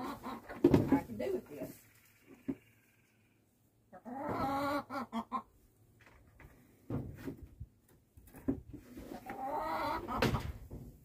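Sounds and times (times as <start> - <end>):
chickens clucking: 0.0 - 1.1, 2.2 - 5.8, 8.8 - 10.6.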